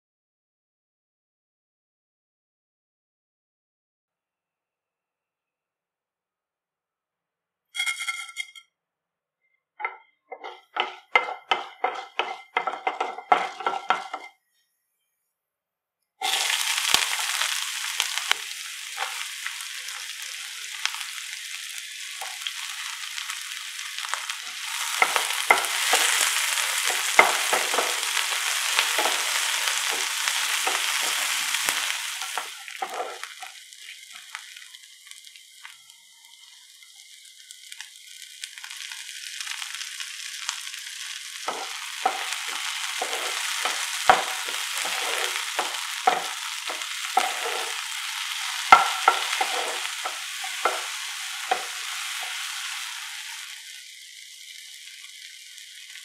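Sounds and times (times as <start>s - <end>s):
food frying in hot oil: 9.8s - 14.3s, 16.2s - 56.0s
spatula stirring: 9.8s - 14.3s, 24.4s - 33.6s, 41.5s - 52.7s.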